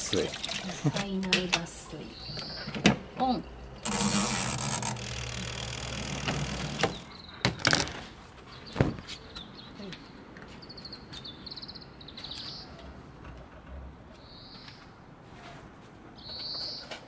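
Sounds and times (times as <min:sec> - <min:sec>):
spin-dryer motor hum: 0:03.8 - 0:07.1.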